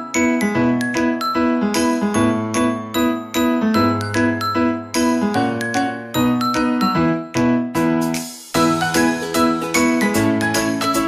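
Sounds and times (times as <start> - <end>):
light melody of ringing notes: 0.0 - 7.6.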